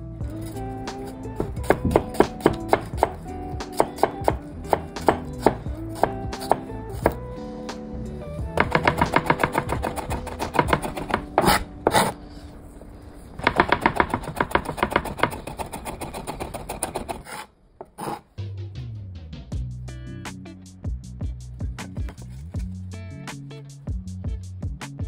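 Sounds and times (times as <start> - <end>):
background music: 0.0 - 15.8, 18.4 - 25.0
knife chopping on cutting board: 1.4 - 7.2, 8.6 - 12.1, 13.4 - 18.2.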